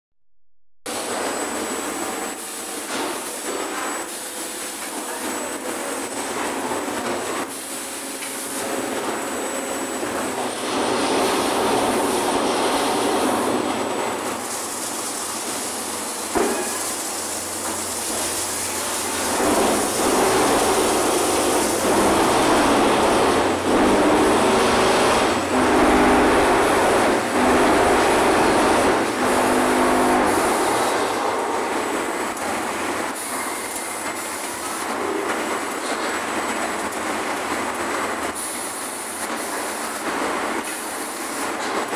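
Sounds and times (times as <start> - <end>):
machinery rumble and rattle: 17.5 - 38.4.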